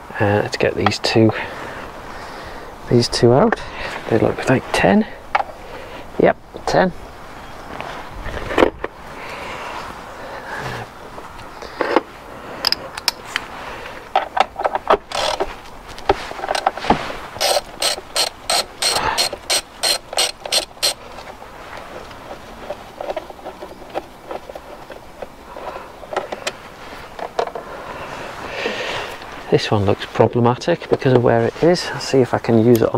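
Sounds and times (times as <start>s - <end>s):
socket ratchet clicking: 12.6s - 13.2s, 15.1s - 15.4s, 17.4s - 21.3s.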